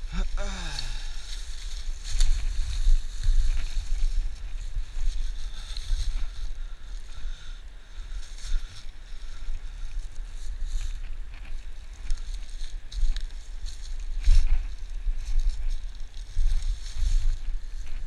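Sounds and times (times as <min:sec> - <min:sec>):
footsteps on dry leaves: 0:00.0 - 0:18.0
wind buffeting microphone: 0:00.0 - 0:18.0.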